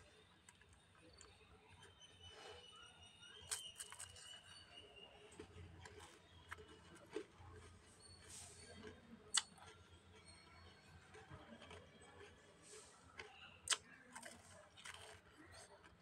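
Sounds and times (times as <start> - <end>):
licking and lip smacks: 8.7 - 9.8, 13.2 - 14.4
small mouth clicks: 9.3 - 9.8, 13.6 - 14.0.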